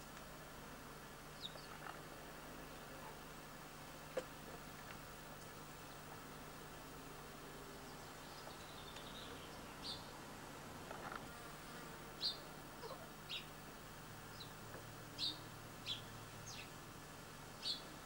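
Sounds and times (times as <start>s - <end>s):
steady hiss: 0.0s - 18.0s
bird chirping: 1.4s - 1.8s, 7.9s - 10.2s, 12.2s - 13.5s, 14.3s - 14.6s, 15.2s - 16.7s, 17.6s - 17.9s.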